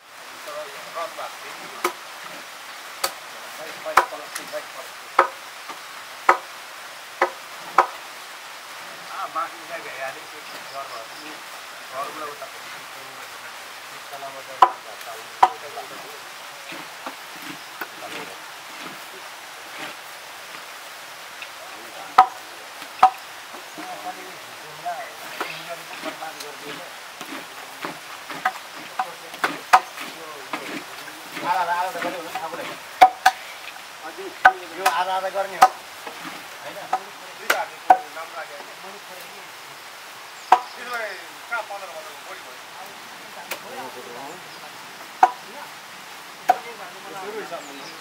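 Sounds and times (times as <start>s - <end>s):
steady hiss: 0.0s - 48.0s
wooden paddle stirring in wok: 16.6s - 20.1s, 25.2s - 33.8s, 34.4s - 36.7s.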